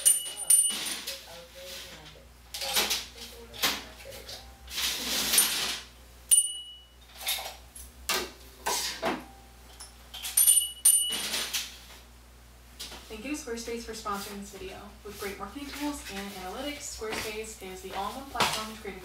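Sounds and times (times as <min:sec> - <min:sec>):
objects shuffled on a shelf: 0:00.7 - 0:05.9, 0:14.1 - 0:18.8
hard items clinking: 0:09.7 - 0:11.7.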